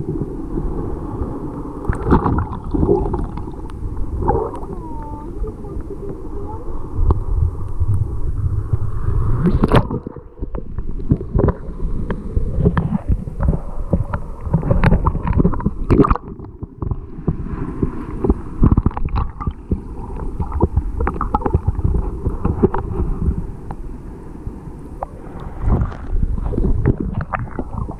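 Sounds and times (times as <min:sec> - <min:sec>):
underwater current gurgling: 0:00.0 - 0:23.8, 0:25.0 - 0:27.9.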